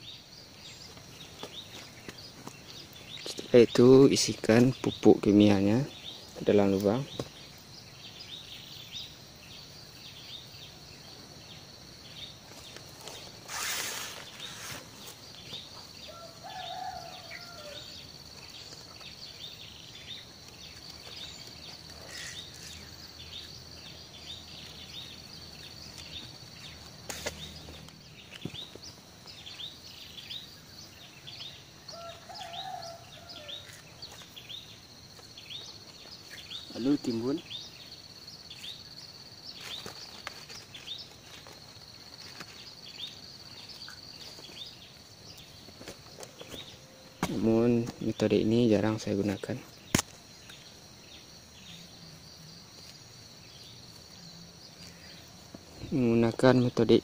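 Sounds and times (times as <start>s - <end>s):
birds chirping: 0.0s - 57.0s
rustling: 12.4s - 16.0s, 39.5s - 48.0s.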